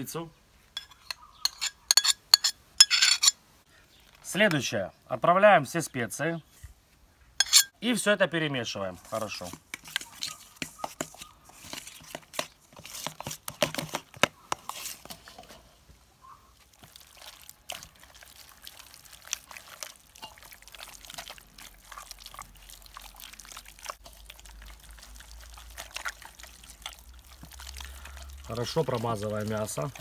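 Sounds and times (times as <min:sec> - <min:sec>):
metal spoon clinking on steel bowl: 0:00.8 - 0:03.4, 0:07.4 - 0:07.7
wet squelching of hands: 0:16.6 - 0:30.0.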